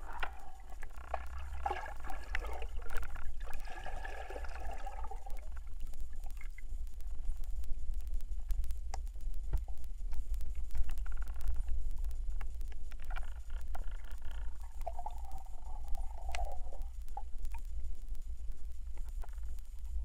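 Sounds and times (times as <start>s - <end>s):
underwater rumble of water: 0.0s - 20.0s
clicks and ticks: 5.4s - 20.0s.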